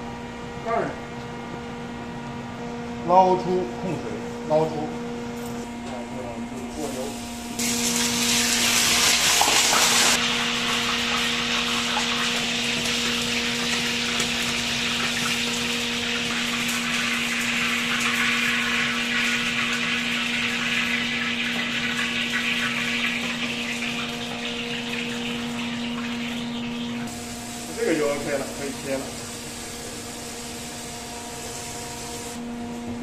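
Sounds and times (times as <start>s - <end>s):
pork sizzling in hot oil: 6.8s - 32.4s.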